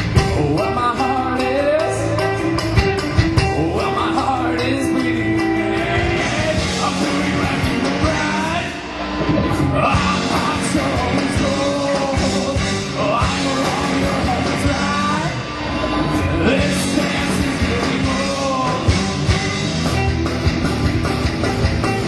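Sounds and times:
bass guitar: 0.0 - 22.0
distorted electric guitars: 0.0 - 22.0
pounding drum kit: 0.0 - 22.0
person singing: 0.1 - 2.4, 3.4 - 15.4, 16.2 - 19.3.

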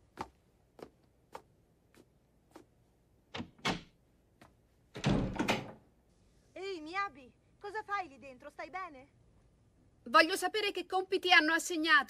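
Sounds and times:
soft footsteps: 0.0 - 3.0, 4.2 - 4.9.

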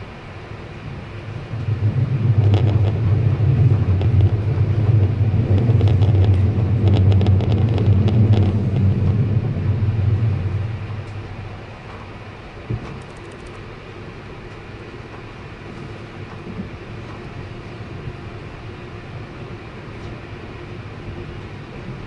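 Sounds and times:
train running on track: 0.0 - 22.0
clicks and rattles: 12.8 - 13.6.

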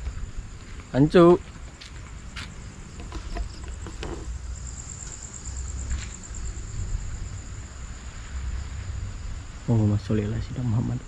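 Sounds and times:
night insects chirring: 0.0 - 11.0
faint knocks: 3.0 - 4.3
wind rumble on microphone: 5.6 - 11.0.

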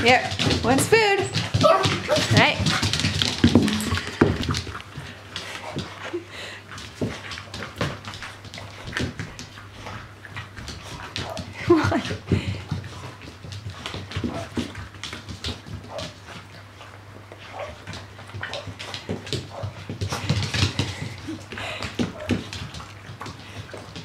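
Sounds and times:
puppies crunching kibble: 0.0 - 24.0
bowls knocking on wooden floor: 3.1 - 4.5.

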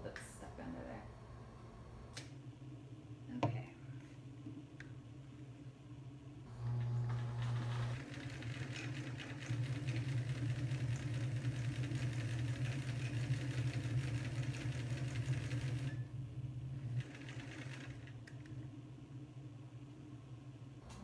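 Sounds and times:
electric sewing machine stitching: 6.5 - 16.1, 16.8 - 18.5.

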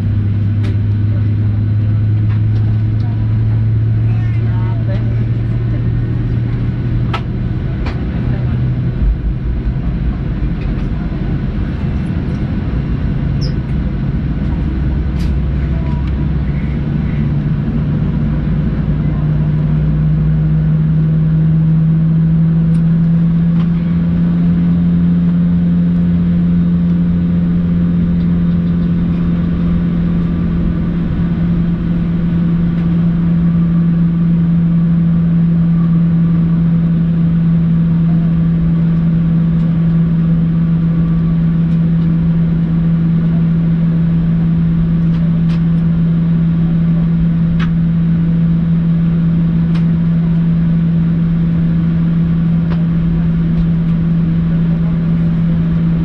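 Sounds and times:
jet engines droning in cabin: 0.0 - 56.0.

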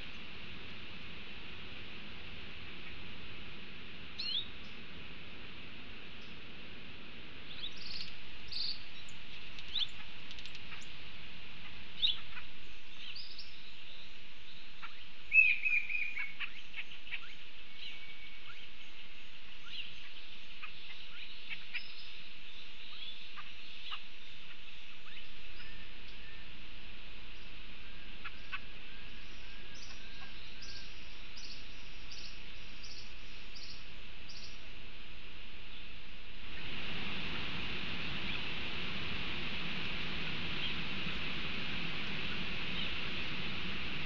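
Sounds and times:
steady high hiss: 0.0 - 44.0
birds chirping and whistling: 4.2 - 4.8, 7.5 - 10.9, 12.0 - 26.5, 28.2 - 34.6, 36.5 - 44.0.

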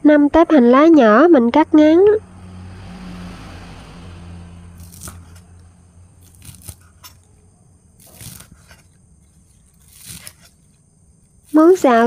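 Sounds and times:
knife slicing on cutting board: 8.0 - 10.7.

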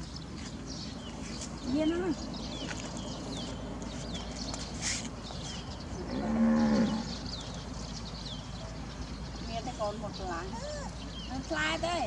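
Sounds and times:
cow mooing: 6.0 - 7.2.

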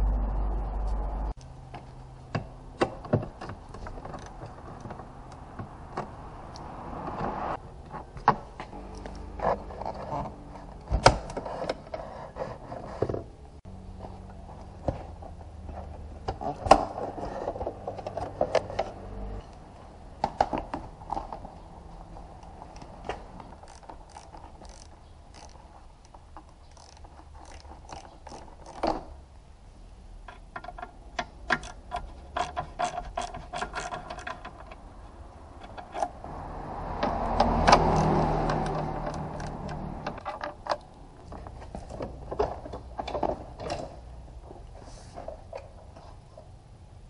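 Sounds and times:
rapid ratchet clicking: 23.6 - 25.6, 26.7 - 28.8
hand tool clicks and knocks: 30.2 - 34.9.

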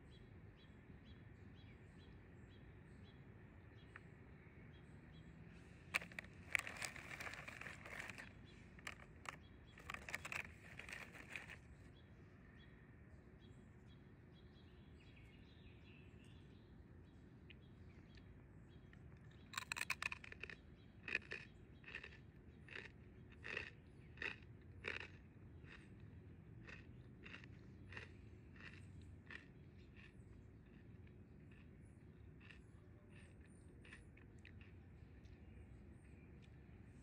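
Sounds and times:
faint birdsong: 0.0 - 37.0
crunching bites of snack: 5.6 - 11.8, 19.3 - 34.8
snack bag crinkling: 5.9 - 11.8, 19.5 - 22.1.

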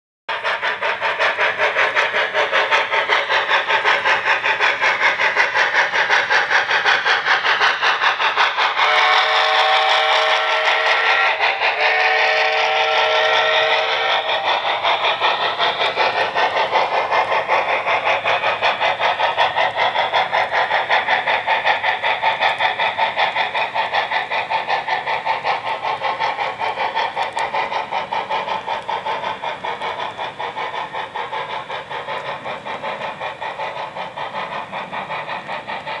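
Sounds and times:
steam locomotive chuffing: 0.3 - 36.0
steam whistle blast: 8.8 - 14.3.

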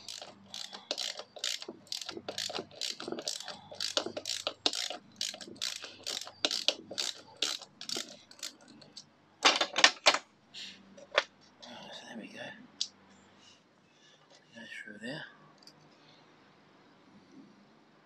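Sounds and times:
gears clicking: 0.0 - 9.0.

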